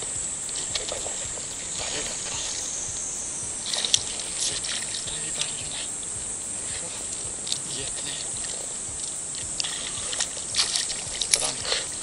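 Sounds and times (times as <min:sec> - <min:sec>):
fish splashing in water: 0:00.0 - 0:12.0
insects droning: 0:00.0 - 0:12.0.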